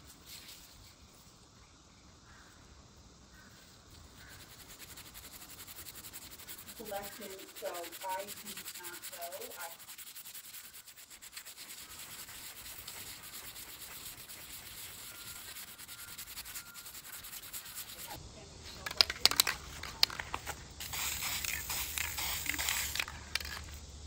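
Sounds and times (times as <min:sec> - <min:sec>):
aerosol can spraying: 0:04.2 - 0:18.2, 0:20.8 - 0:23.7
scrubbing metal with abrasive: 0:04.2 - 0:18.2.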